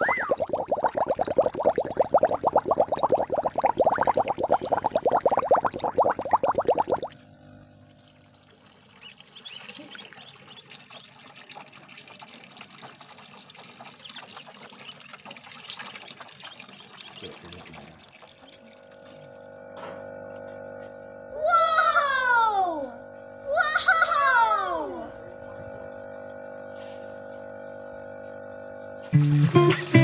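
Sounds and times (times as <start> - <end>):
steady hum: 0.0 - 9.6, 18.4 - 29.9
water trickling and splashing: 0.0 - 19.3
ducklings chirping: 9.0 - 11.0.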